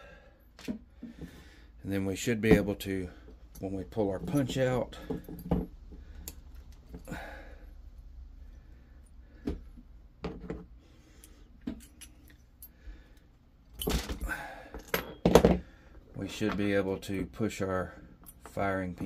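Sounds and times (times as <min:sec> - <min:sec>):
metallic clicks and clinks: 0:11.2 - 0:12.7.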